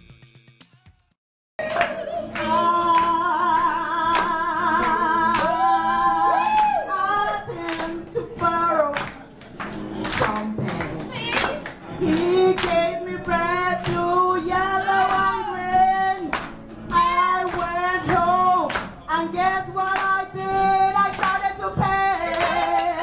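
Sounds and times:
woman singing into microphone: 1.6s - 9.0s, 10.1s - 23.0s
people clapping along: 1.6s - 23.0s.

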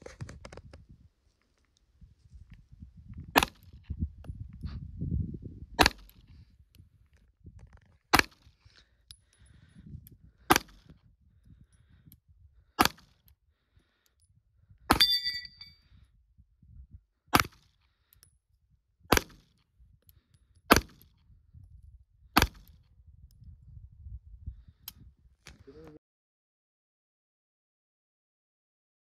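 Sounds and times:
steel target ringing: 14.9s - 15.8s.

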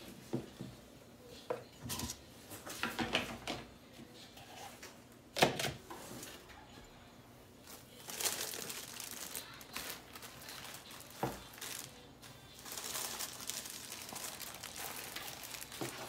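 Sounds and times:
plastic sleeves crinkling: 7.6s - 16.0s.

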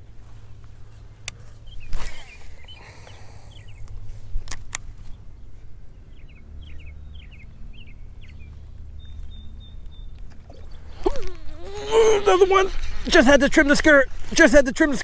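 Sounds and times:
low steady rumble: 0.0s - 15.0s
small birds chirping: 0.3s - 15.0s
fishing reel spool whirring: 10.3s - 13.8s.

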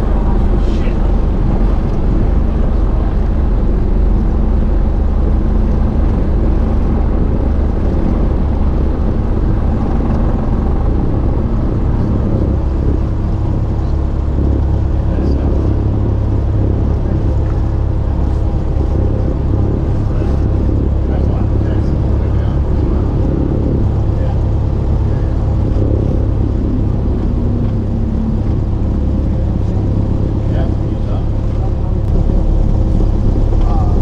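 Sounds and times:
airplane engine drone: 0.0s - 34.0s.

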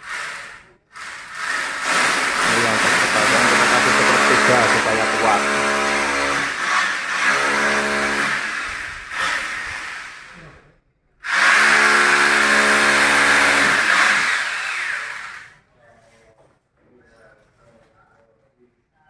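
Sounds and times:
electric drill boring into masonry: 0.0s - 10.4s, 11.2s - 15.6s.

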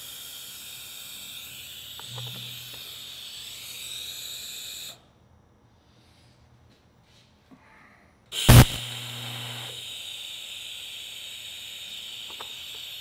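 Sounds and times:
welding arc hissing: 0.0s - 5.0s, 8.3s - 13.0s
welding arc pop: 8.4s - 10.0s, 10.9s - 13.0s.

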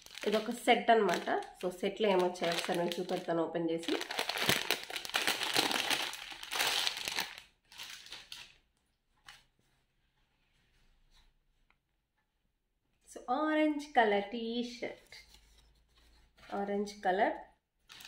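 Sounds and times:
plastic bag crinkling: 0.0s - 8.6s.

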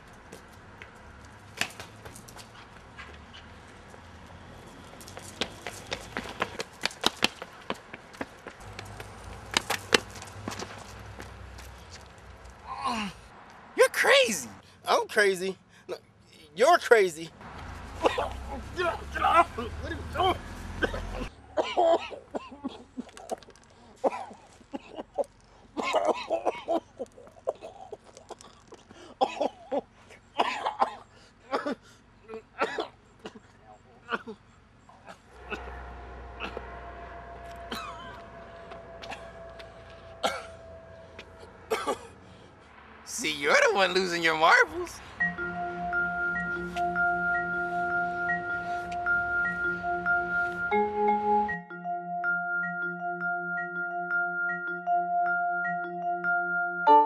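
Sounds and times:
footsteps running on concrete: 4.9s - 11.8s.

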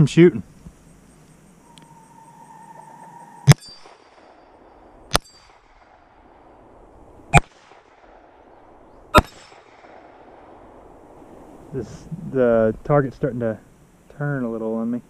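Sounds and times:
pistol shots: 7.3s - 8.4s, 9.2s - 10.6s.

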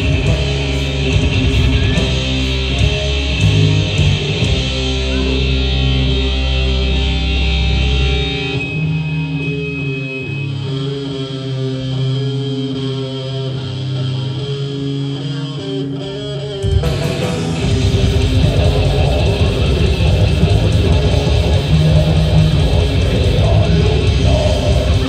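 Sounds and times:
held electric guitar notes: 0.0s - 25.0s
metal band playing live: 0.0s - 25.0s
fast dense drumming: 16.8s - 25.0s.

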